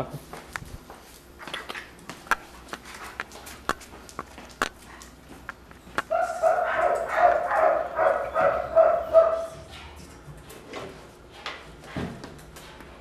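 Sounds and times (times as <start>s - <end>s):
dog whining: 6.1s - 9.7s.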